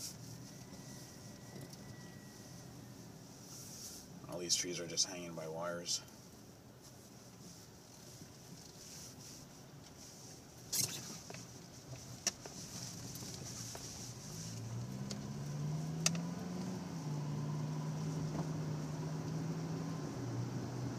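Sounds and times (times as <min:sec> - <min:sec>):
car engine from inside cabin: 0:00.0 - 0:20.9
road noise: 0:00.0 - 0:20.9.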